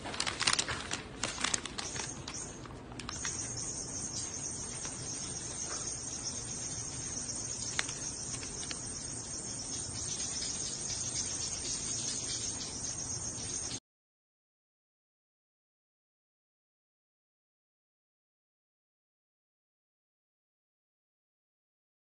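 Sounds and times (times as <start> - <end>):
insects chirping: 1.2 - 13.8.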